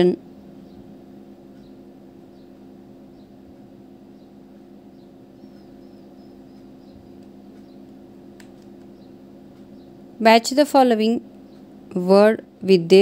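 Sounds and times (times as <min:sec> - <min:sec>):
low electrical hum: 0:00.0 - 0:13.0
faint high chirps: 0:04.1 - 0:08.0.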